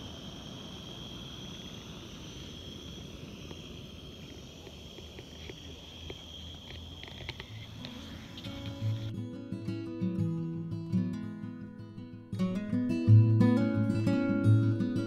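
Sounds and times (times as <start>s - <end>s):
gas camping stove hissing: 0.0s - 9.1s.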